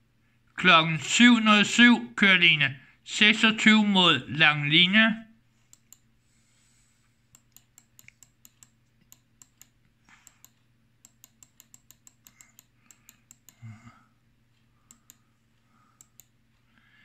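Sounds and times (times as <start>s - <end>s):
keyboard typing: 7.4s - 13.6s, 16.0s - 16.3s.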